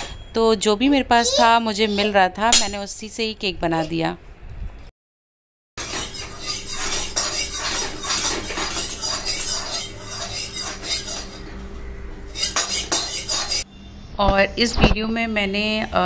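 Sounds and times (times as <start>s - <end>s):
whisk clinking in metal pot: 5.8s - 11.4s, 12.4s - 13.6s.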